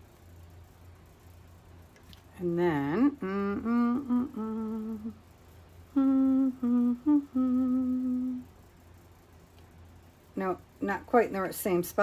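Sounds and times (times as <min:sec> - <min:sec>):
woman humming: 0:02.4 - 0:05.2, 0:05.9 - 0:08.5.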